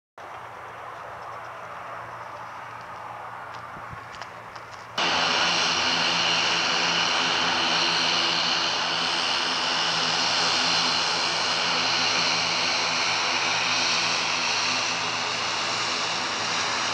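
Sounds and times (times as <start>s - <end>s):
turboprop engines running: 0.3s - 16.9s.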